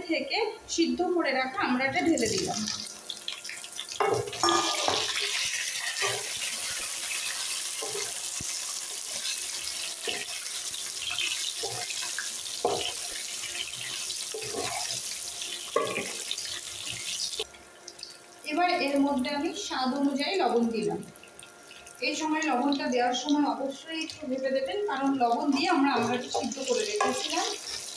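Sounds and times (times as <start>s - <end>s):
food frying in oil: 1.6s - 27.9s
spatula scraping a wok: 4.1s - 17.3s.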